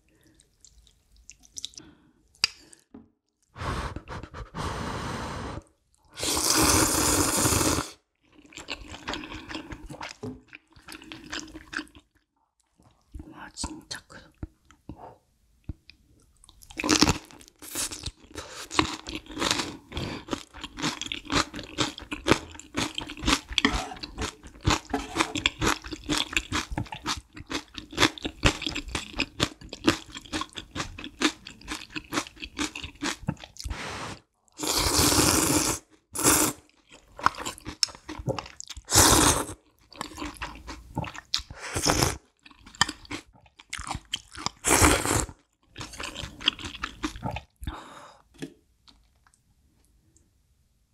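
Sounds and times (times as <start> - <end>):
slurping noodles: 3.6 - 8.0, 23.6 - 26.2, 33.6 - 36.6, 38.9 - 39.6
crunching and chewing pepper: 16.6 - 33.7, 39.8 - 47.6.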